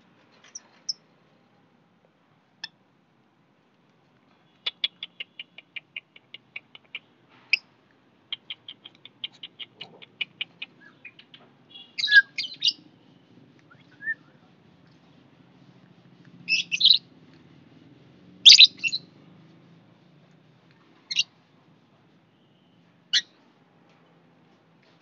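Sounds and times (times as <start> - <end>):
lovebirds chirping: 8.4 - 12.9, 16.5 - 17.0, 18.5 - 19.1, 21.1 - 21.3
harsh bird squawks: 11.7 - 12.8.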